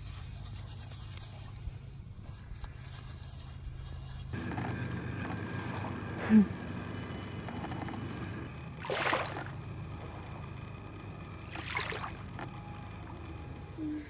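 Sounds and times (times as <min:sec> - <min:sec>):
small waves lapping on shore: 0:08.8 - 0:09.8, 0:11.4 - 0:12.5
water splashes: 0:08.8 - 0:10.0, 0:11.4 - 0:12.5.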